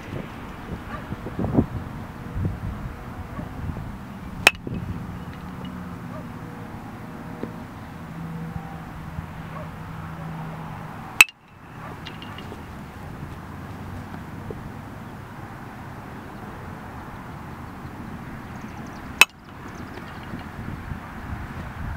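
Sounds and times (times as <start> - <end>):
baseball bat cracking ball: 4.4 - 5.8, 11.1 - 12.9, 19.1 - 20.4.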